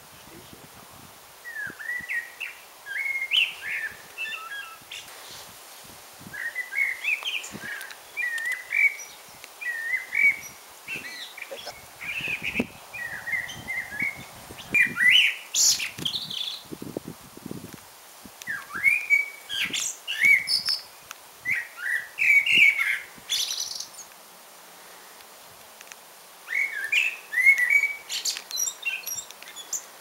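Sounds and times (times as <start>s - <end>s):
songbird warbling: 6.4s - 16.6s.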